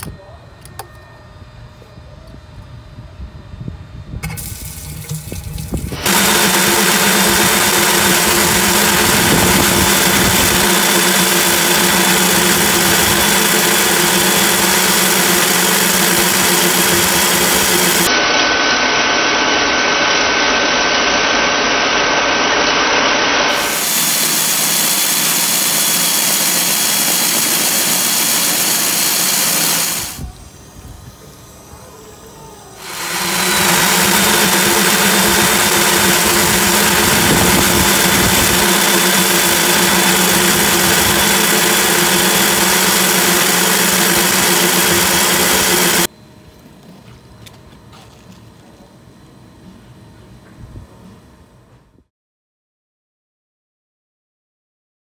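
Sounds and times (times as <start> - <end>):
core drill motor humming: 4.2 - 46.1.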